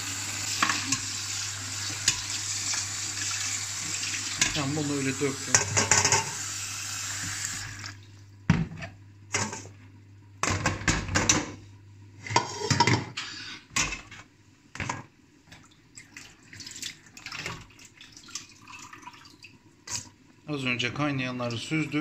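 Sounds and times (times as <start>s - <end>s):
tap water running into bowl: 0.1s - 8.2s, 15.5s - 20.1s.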